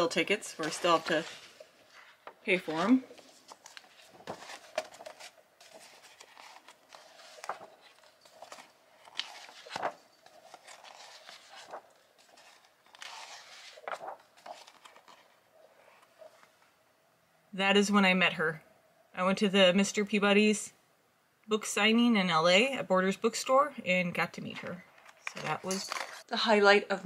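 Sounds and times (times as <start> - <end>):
magazine pages turning: 0.0 - 16.6, 24.9 - 26.3.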